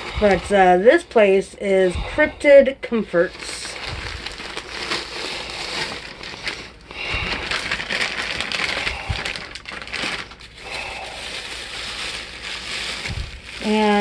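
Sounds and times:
plastic bag crinkling: 3.1s - 14.0s.

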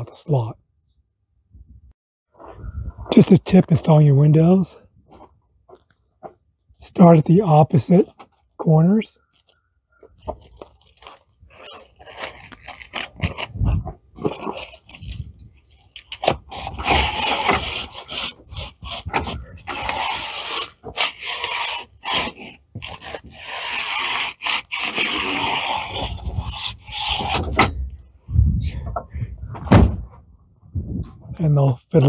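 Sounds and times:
plastic panel rubbing against frame: 10.0s - 28.0s.

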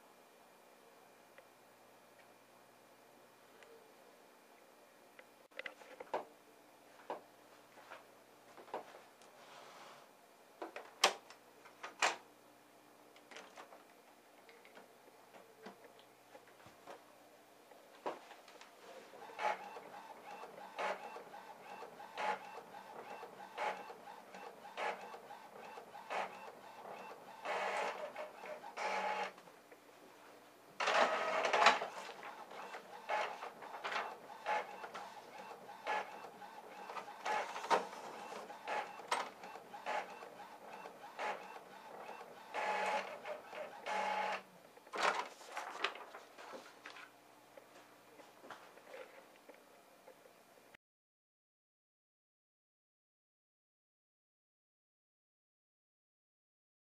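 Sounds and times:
printer motor running: 19.1s - 29.4s, 30.8s - 44.4s
printer clicking: 30.8s - 45.2s.

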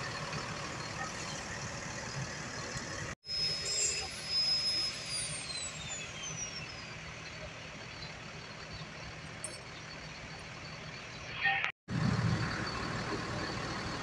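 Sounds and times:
diesel bus engine idling: 0.0s - 3.2s, 5.8s - 11.3s, 11.9s - 14.0s.

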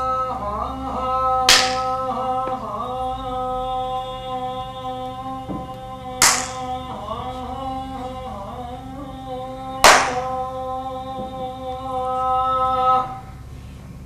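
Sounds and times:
hand claps: 1.5s - 2.0s, 6.2s - 6.7s, 9.8s - 10.3s.

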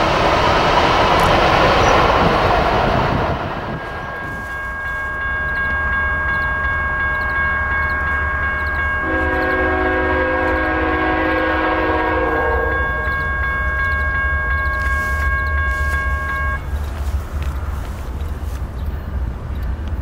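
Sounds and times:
low train rumble: 0.0s - 20.0s
locomotive air horn blast: 9.0s - 13.0s.

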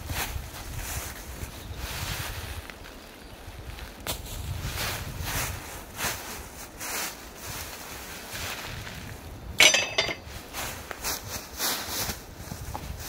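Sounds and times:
iron pieces clinking together: 9.6s - 10.3s.

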